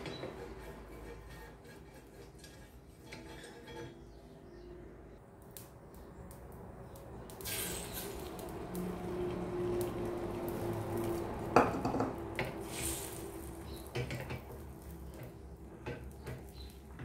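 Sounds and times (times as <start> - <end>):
frying pan knocking on stove grate: 11.5 - 12.6.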